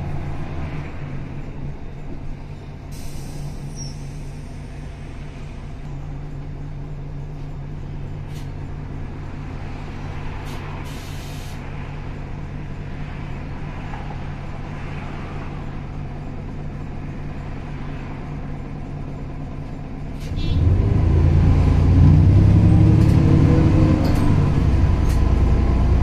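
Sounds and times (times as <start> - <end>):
bus engine humming: 0.0 - 26.0
compressed air hissing: 2.9 - 5.0, 10.4 - 11.6.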